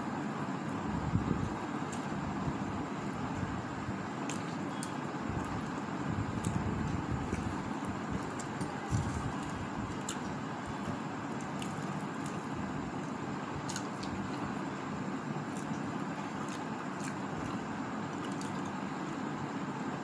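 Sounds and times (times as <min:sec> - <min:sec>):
steady background noise: 0:00.0 - 0:20.0
faint chewing clicks: 0:04.2 - 0:14.8, 0:15.4 - 0:19.2.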